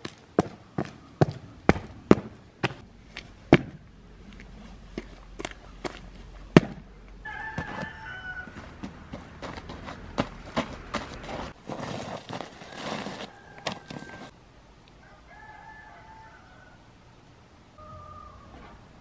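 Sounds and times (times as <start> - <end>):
rooster crowing: 7.2 - 8.9, 12.6 - 14.4, 15.0 - 16.9, 17.8 - 18.8.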